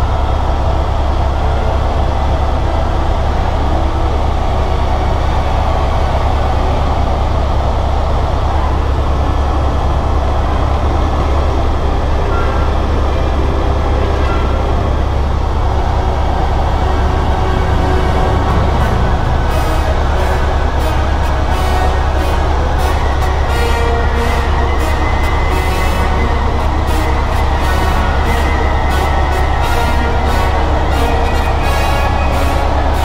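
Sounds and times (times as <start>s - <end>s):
helicopter engine and rotor drone: 0.0s - 33.0s.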